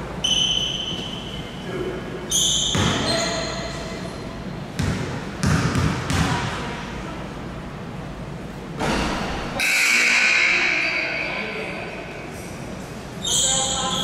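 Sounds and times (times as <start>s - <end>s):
basketball bouncing on court: 2.6s - 3.3s, 4.7s - 6.6s.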